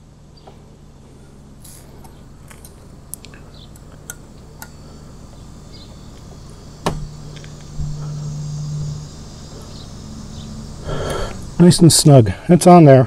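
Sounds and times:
low steady hum: 0.0s - 13.0s
small metal clicks: 1.2s - 5.4s.

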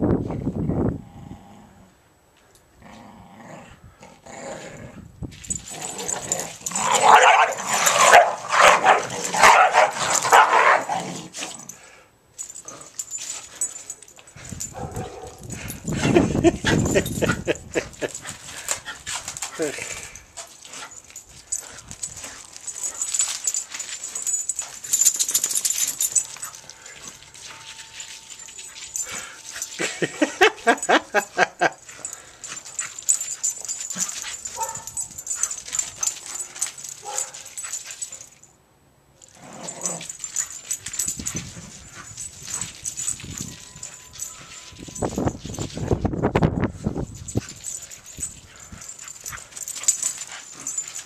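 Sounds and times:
dogs barking and whining: 5.6s - 11.8s, 12.4s - 19.7s, 20.5s - 38.5s, 39.2s - 45.5s, 47.3s - 51.0s
dog yipping: 34.0s - 35.7s.

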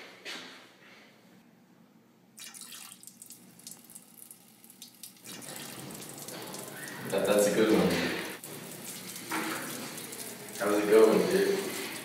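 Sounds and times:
liquid trickling into urinal: 2.4s - 12.0s.

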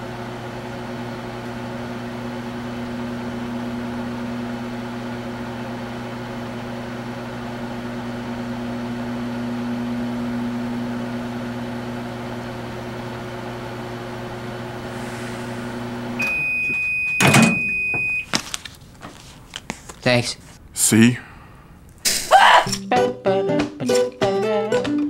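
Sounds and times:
microwave oven humming: 0.0s - 18.4s
long high beep: 16.2s - 18.3s.

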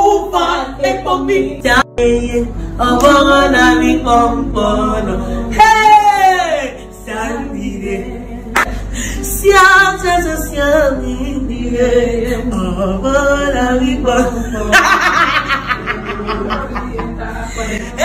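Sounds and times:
woman singing unaccompanied: 0.0s - 8.5s, 9.2s - 15.1s
woman laughing: 14.7s - 18.0s.

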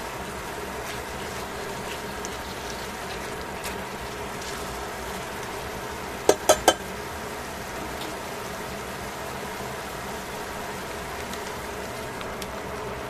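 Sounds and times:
meat sizzling in frying pan: 0.0s - 13.0s
tongs clacking against pan: 6.3s - 6.8s.

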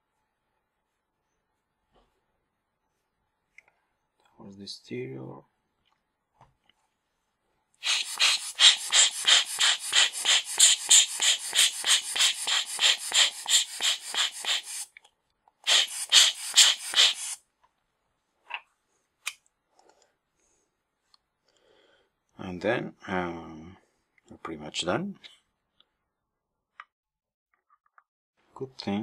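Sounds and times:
hand air blower puffing: 7.8s - 14.9s, 15.6s - 17.4s.

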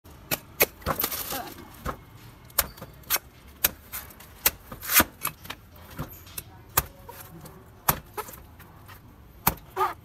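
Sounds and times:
knife chopping coconut husk: 6.7s - 8.4s.

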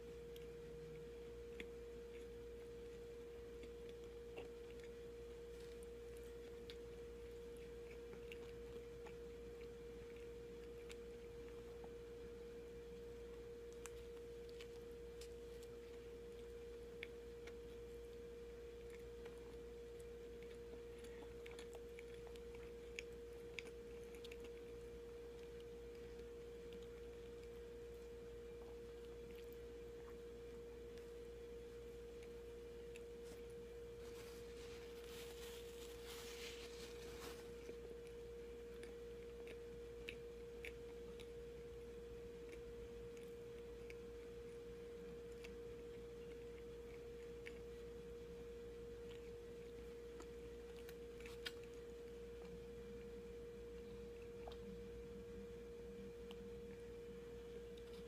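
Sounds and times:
chewing with mouth clicks: 0.0s - 58.0s
steady hum: 0.0s - 58.0s.

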